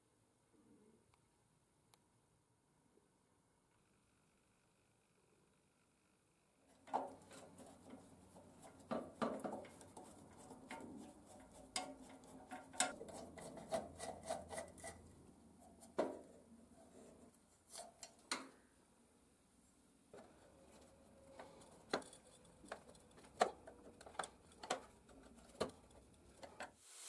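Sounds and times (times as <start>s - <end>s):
metal clicks and knocks: 6.8s - 13.2s
screwdriver scraping metal: 8.6s - 15.1s.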